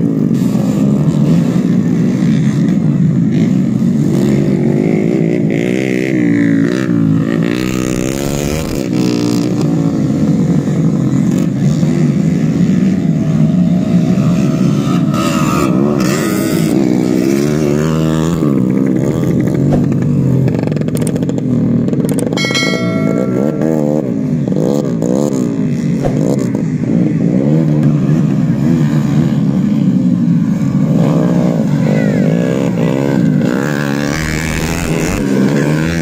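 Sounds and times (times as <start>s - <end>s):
steady high tone: 22.4s - 24.7s.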